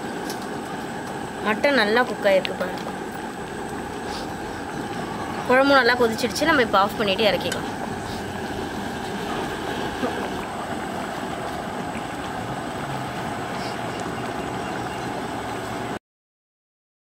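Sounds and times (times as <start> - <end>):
curry boiling hard: 0.0 - 16.0.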